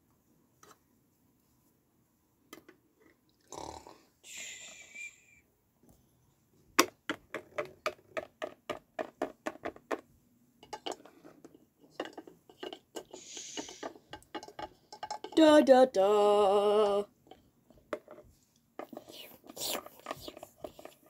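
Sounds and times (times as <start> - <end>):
plastic toy tapping on wood: 6.8 - 10.0
hissing: 13.2 - 13.9.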